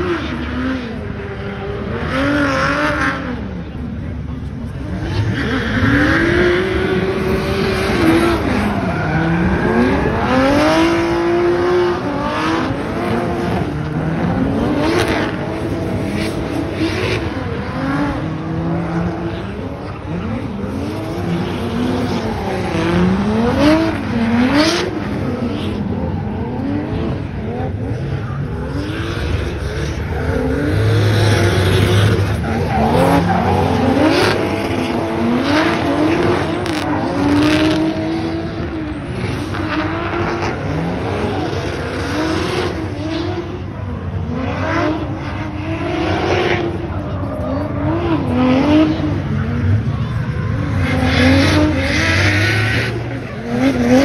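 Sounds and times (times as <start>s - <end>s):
car engine revving hard: 0.0s - 54.0s
tyres squealing and skidding: 4.9s - 11.4s, 28.6s - 37.7s.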